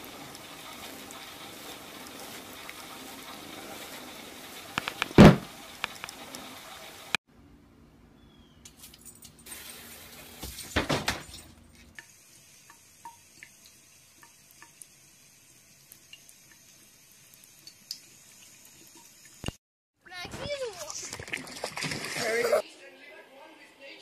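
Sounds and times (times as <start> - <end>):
tap water running into sink: 0.0 - 7.2.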